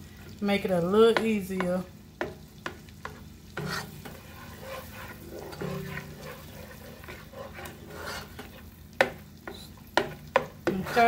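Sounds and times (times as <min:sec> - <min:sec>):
butter sizzling: 0:00.0 - 0:11.0
spatula scraping a pot: 0:02.2 - 0:11.0.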